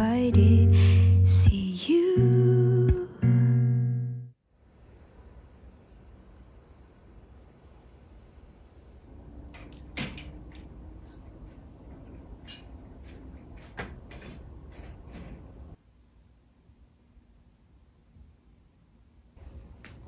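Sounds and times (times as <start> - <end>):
sharp clacks of blinds: 9.5 - 15.8
window blinds clicking and rattling: 9.6 - 15.8.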